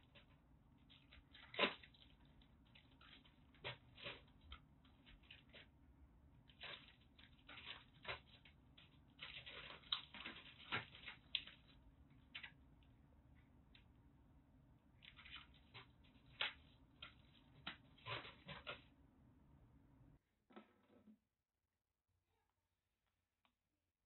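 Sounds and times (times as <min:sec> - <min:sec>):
kitten rustling on newspaper: 0:06.4 - 0:12.6, 0:15.1 - 0:18.9.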